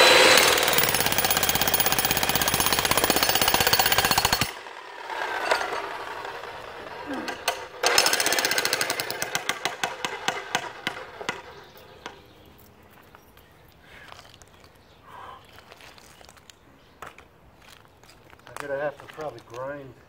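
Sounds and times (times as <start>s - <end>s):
jackhammer hammering concrete: 0.0s - 12.2s.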